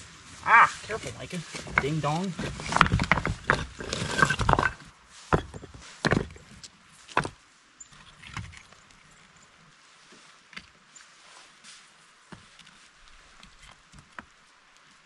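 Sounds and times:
stones clacking and scraping: 0.5 - 9.0.

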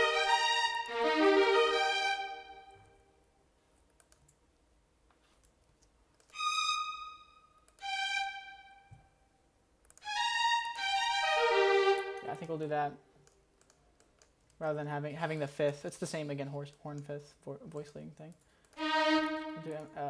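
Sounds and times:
sampled violin notes: 0.0 - 3.0, 6.3 - 9.2, 10.0 - 12.8, 18.8 - 20.0
faint mouse clicks: 3.8 - 4.4, 12.2 - 14.7.

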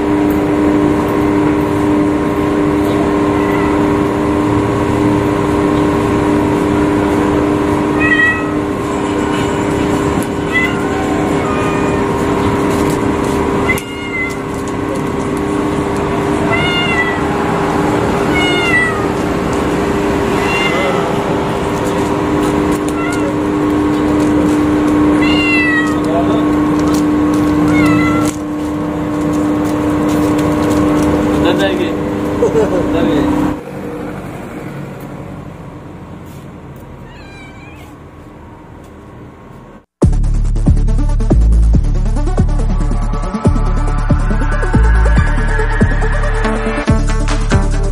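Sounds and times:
steady background hum: 0.0 - 47.9
kitten meowing: 3.2 - 4.1, 7.9 - 8.8, 10.2 - 12.6, 13.6 - 14.7, 16.4 - 17.3, 18.2 - 19.2, 20.3 - 21.3, 22.7 - 23.7, 25.1 - 26.1, 27.6 - 28.4, 37.0 - 38.0
loud electronic music: 40.0 - 47.9.

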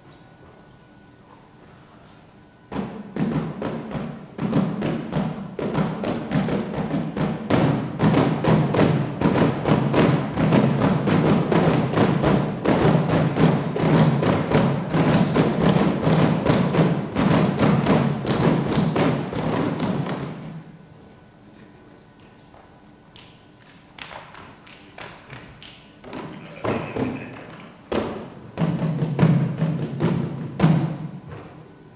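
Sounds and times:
quick percussive beat: 2.7 - 20.4, 23.9 - 31.1.

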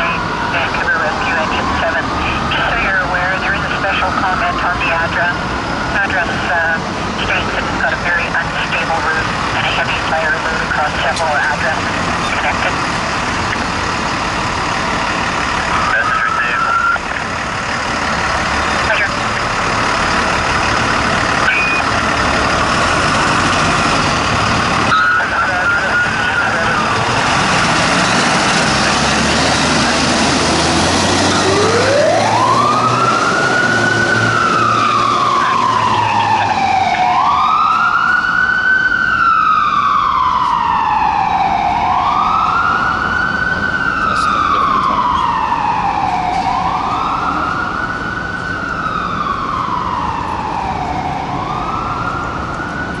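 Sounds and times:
wailing siren: 0.0 - 53.0
truck engine pulling away: 11.6 - 53.0.

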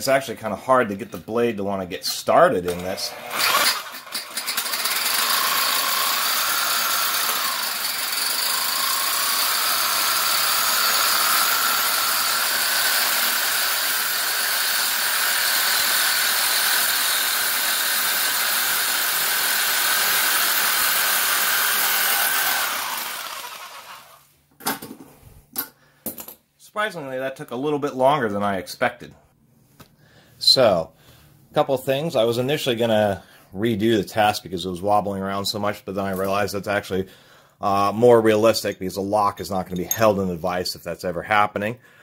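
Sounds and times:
reciprocating saw cutting metal: 2.8 - 24.2.

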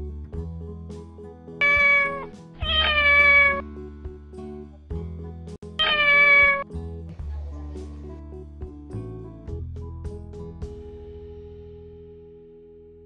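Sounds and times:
cat meowing: 1.6 - 3.6, 5.8 - 6.6.

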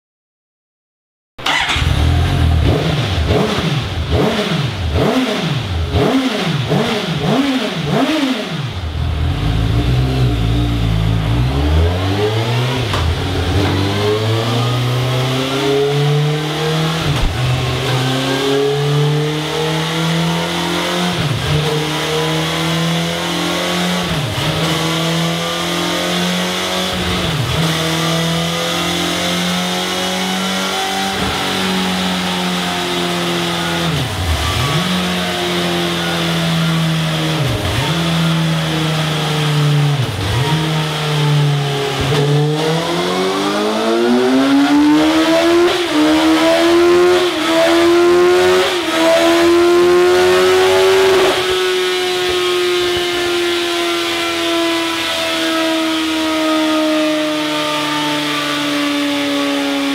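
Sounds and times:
motorcycle engine revving: 1.4 - 59.9.

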